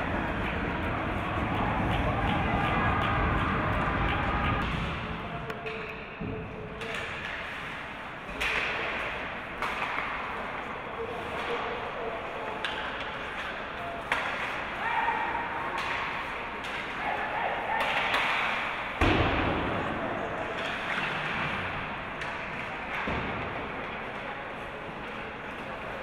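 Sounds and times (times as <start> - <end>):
hockey sticks and puck clacking: 0.0 - 26.0
voices and shouts: 0.8 - 4.6, 14.6 - 18.4.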